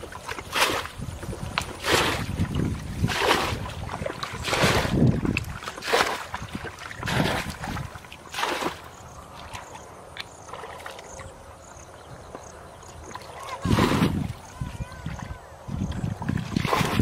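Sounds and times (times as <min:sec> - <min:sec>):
bucket splashing water: 0:00.0 - 0:09.8, 0:13.1 - 0:14.4, 0:16.0 - 0:17.0.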